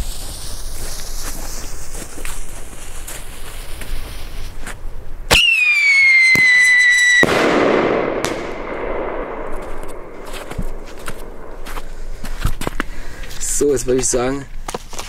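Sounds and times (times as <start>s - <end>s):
firework launch crack: 0.0s - 4.6s, 5.3s - 12.9s
firework screaming whistle: 5.3s - 8.7s
firework bang with echo: 5.3s - 11.8s.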